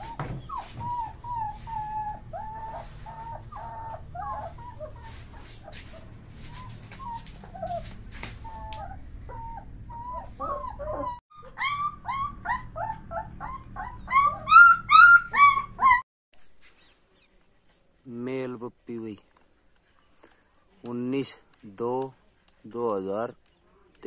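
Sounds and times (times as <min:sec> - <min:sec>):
puppies whimpering and squealing: 0:00.0 - 0:16.0.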